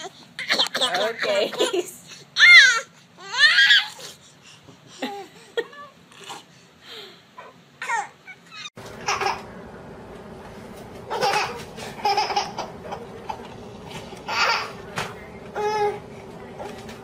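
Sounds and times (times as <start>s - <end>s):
faint steady hum: 0.0s - 17.0s
baby laughing: 7.8s - 9.5s, 11.1s - 13.5s, 14.2s - 14.8s.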